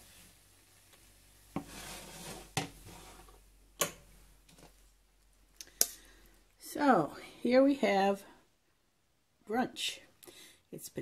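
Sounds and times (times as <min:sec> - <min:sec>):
utensil scraping skillet: 0:00.0 - 0:03.5.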